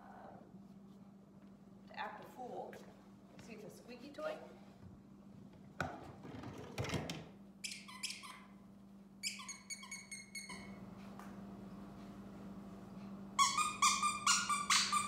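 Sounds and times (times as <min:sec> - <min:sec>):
squeaky toy squeaking: 0:07.6 - 0:08.6, 0:09.2 - 0:10.7, 0:13.4 - 0:15.0.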